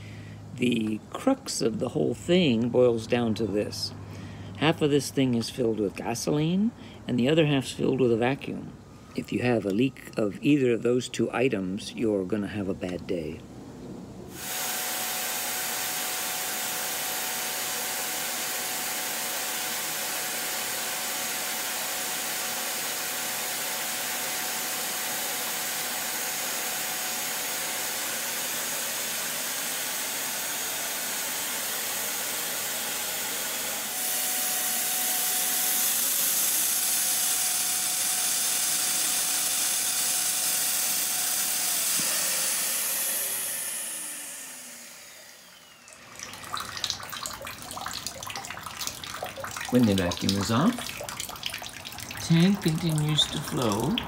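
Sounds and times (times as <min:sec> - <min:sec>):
vacuum cleaner running: 0:14.3 - 0:46.9, 0:52.2 - 0:54.0.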